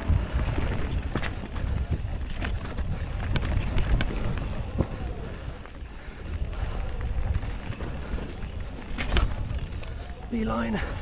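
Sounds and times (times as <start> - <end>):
bike knocks and rattles: 0.0 - 5.2, 7.2 - 10.0
wind rumbling on microphone: 0.0 - 11.0.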